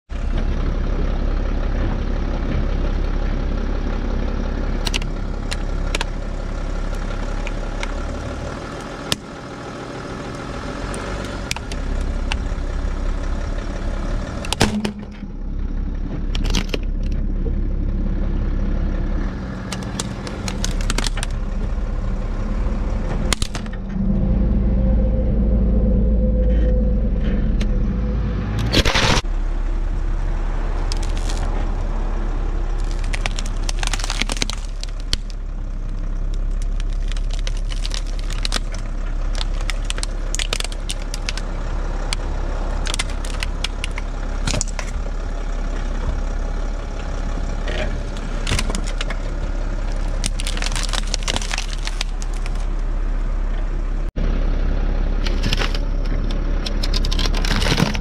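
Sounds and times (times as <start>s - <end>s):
car engine running slowly: 0.1s - 58.0s
laptop case cracking: 19.7s - 21.3s, 30.9s - 31.5s, 32.8s - 35.3s, 36.6s - 38.8s, 39.4s - 41.4s, 42.8s - 44.9s, 48.2s - 49.2s, 50.0s - 52.6s.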